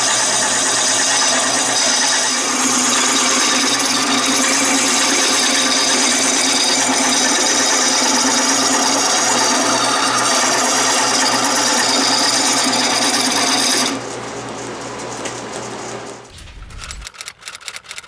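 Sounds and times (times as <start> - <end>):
lathe gouge scraping wood: 0.0 - 14.0
lathe motor hum: 0.0 - 16.2
typewriter key clicks: 16.6 - 18.0.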